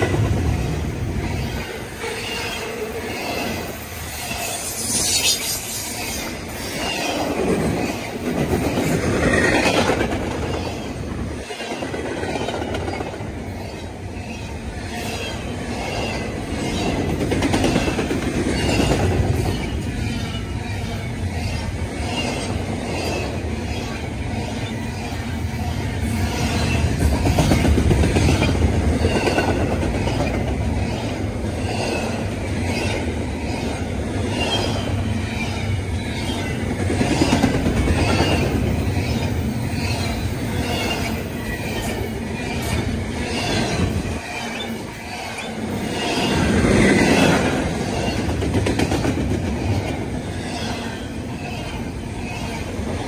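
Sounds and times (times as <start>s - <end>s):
train wheels rumbling on rails: 0.0s - 53.0s
wheels clacking on rail joints: 24.6s - 53.0s.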